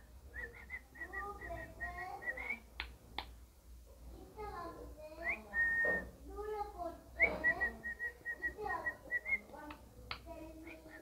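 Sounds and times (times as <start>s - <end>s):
cockatiel whistling: 5.2s - 6.1s.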